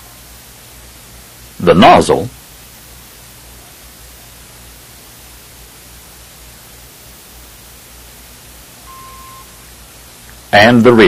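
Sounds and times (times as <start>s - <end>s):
film soundtrack hiss: 0.0s - 11.0s
short steady beep: 8.8s - 9.6s.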